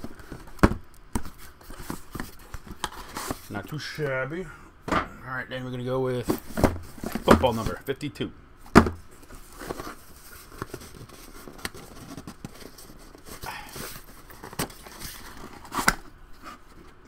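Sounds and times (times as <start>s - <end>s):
cardboard scraping and rustling: 0.0s - 3.6s, 6.2s - 7.8s, 8.8s - 17.0s.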